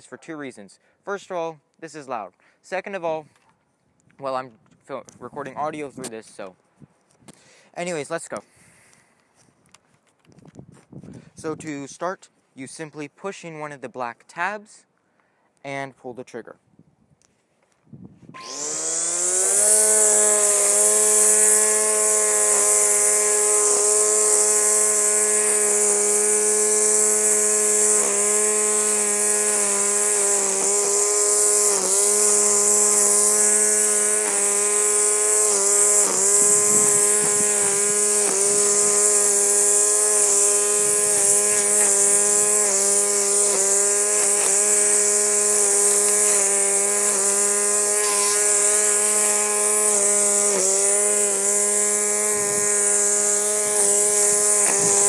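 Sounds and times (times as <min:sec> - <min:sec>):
string trimmer motor whine: 0:18.3 - 0:55.0
nylon line hissing: 0:37.7 - 0:51.5.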